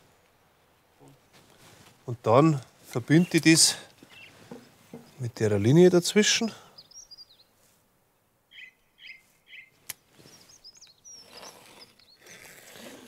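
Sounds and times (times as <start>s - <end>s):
faint birdsong: 0.0s - 12.9s.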